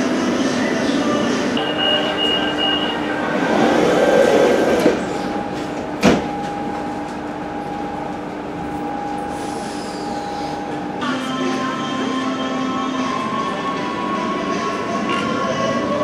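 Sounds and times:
train electric hum: 0:00.0 - 0:16.0
high warning tone: 0:01.6 - 0:03.6, 0:05.0 - 0:15.1.

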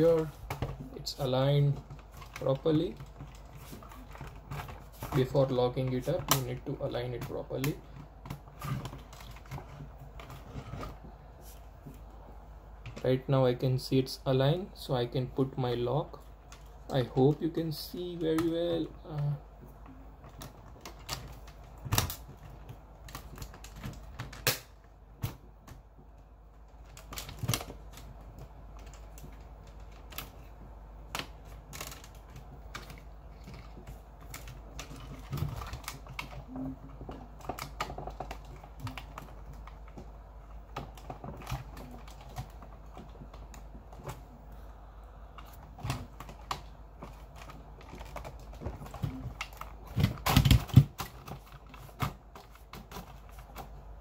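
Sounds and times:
steady low hum: 0:00.0 - 0:54.0
plastic modules clicking and knocking: 0:45.4 - 0:53.8.

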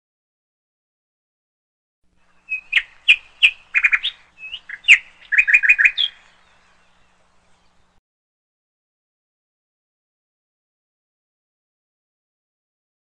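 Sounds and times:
bird chirping: 0:02.2 - 0:08.0.

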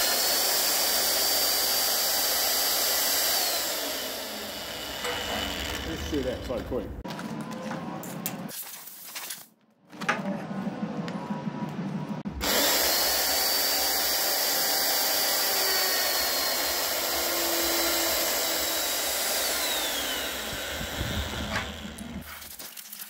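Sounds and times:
magnetic drill boring steel: 0:00.0 - 0:06.9, 0:12.4 - 0:22.3.

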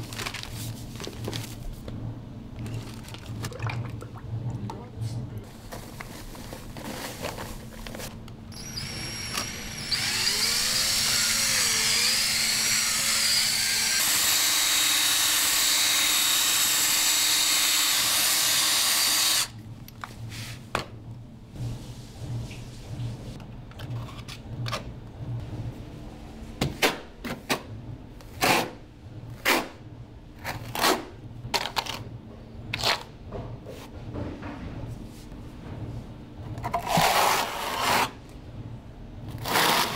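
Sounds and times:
electric drill mixing in a bucket: 0:08.5 - 0:19.5, 0:39.4 - 0:39.9.

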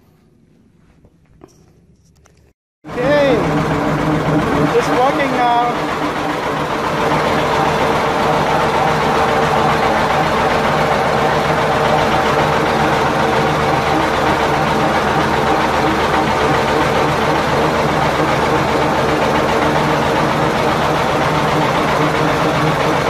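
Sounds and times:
tractor engine running mower: 0:02.9 - 0:23.0.

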